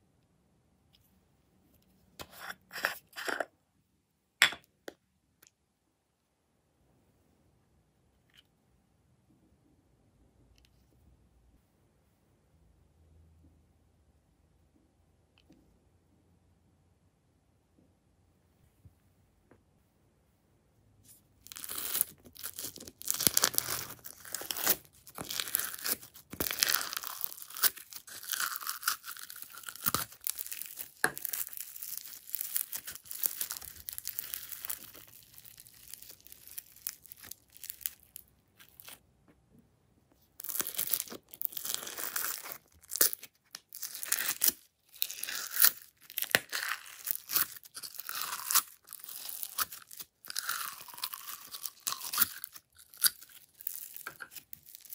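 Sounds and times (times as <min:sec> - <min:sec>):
foam beads crunching and crackling: 0:21.4 - 0:39.0, 0:40.4 - 0:54.9.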